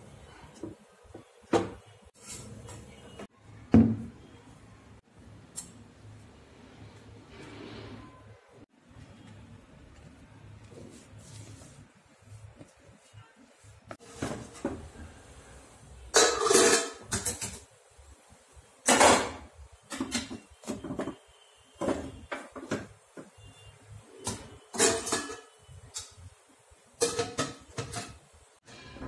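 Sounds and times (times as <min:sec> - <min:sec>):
metal cookware clattering: 0:16.1 - 0:17.7, 0:18.8 - 0:21.2, 0:24.2 - 0:26.4, 0:27.0 - 0:29.0.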